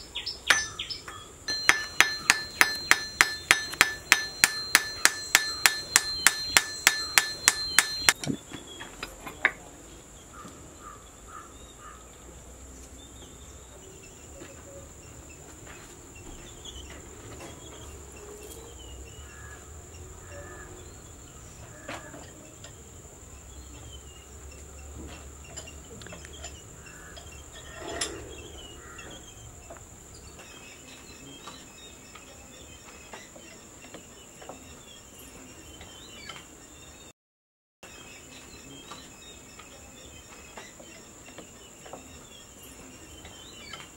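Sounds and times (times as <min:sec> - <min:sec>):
hammer striking metal on anvil: 0:00.5 - 0:08.2.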